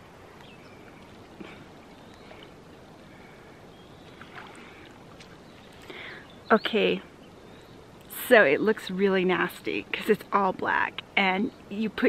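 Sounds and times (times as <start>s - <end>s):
water sloshing and lapping: 0.0s - 6.4s
soft water splashes: 0.0s - 6.5s.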